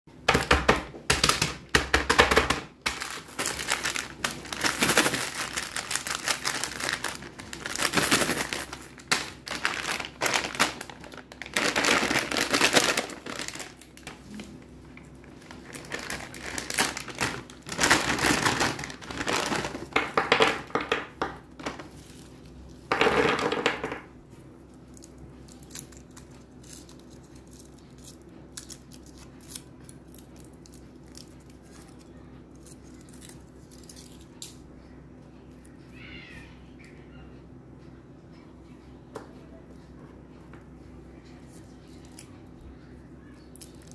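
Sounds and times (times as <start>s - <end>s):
plastic wrapping crinkling: 1.1s - 24.0s
foil wrapper rustling: 1.2s - 21.0s.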